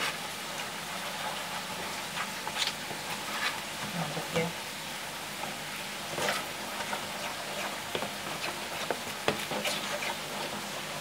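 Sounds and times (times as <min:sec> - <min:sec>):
spoon squelching through batter: 0:06.2 - 0:10.6.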